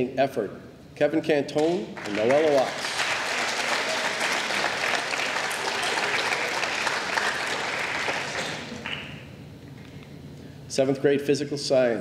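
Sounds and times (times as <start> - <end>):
audience clapping: 1.6 - 9.3.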